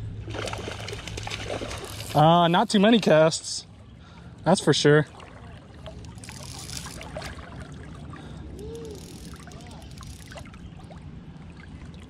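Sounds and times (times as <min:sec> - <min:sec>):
stream trickling: 0:00.2 - 0:12.0
small ticks: 0:08.6 - 0:10.6.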